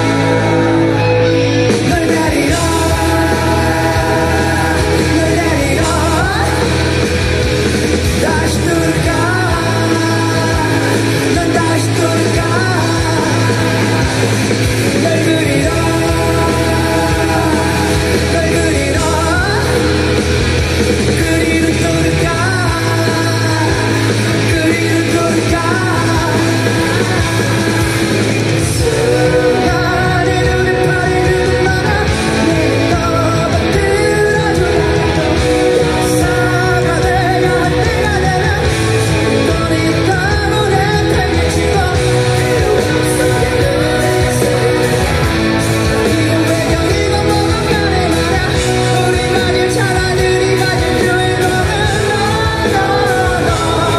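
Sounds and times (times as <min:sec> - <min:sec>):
live rock band: 0:00.0 - 0:53.9
man singing: 0:00.0 - 0:53.9
strummed electric guitar: 0:00.0 - 0:53.9.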